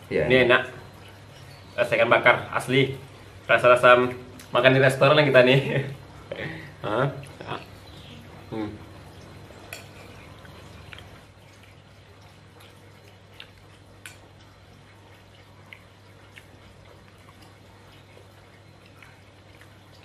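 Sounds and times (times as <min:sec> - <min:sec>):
faint low hum: 0:00.0 - 0:20.0
chewing smacks: 0:09.2 - 0:20.0.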